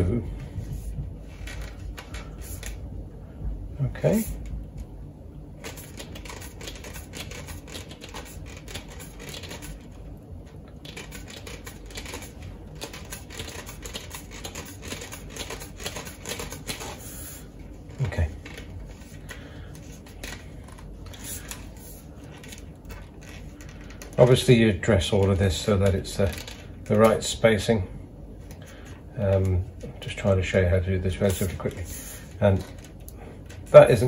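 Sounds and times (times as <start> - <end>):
wire clicking and rubbing on coil: 17.7 - 24.5.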